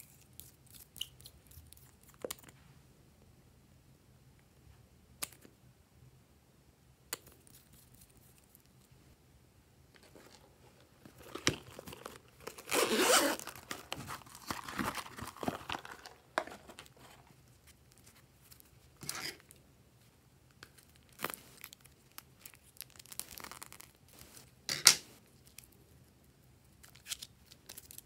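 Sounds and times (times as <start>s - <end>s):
plastic crinkling and tearing: 11.1s - 17.3s, 20.6s - 24.3s.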